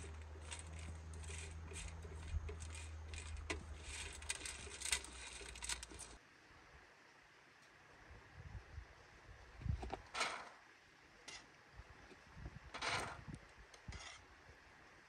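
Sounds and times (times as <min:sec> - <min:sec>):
wind rumble on microphone: 0:08.1 - 0:10.1, 0:11.8 - 0:14.0.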